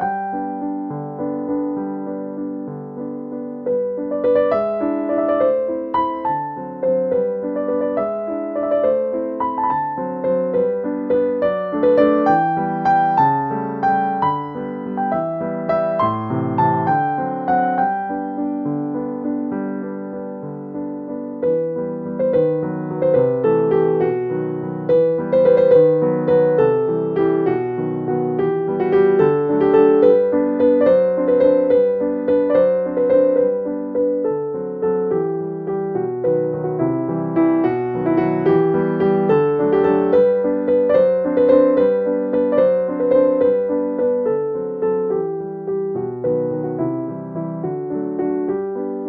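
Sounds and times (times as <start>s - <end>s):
gentle piano melody: 0.0s - 49.0s.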